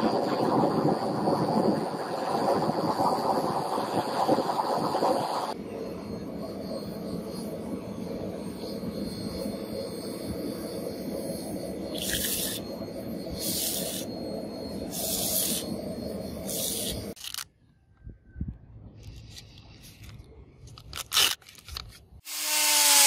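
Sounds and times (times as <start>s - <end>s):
hot blade sizzling and bubbling: 8.4s - 17.2s.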